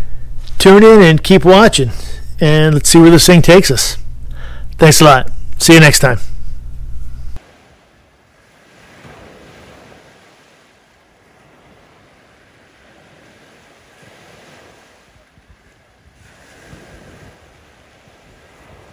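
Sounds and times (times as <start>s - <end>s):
ocean surf rushing: 7.4s - 18.9s.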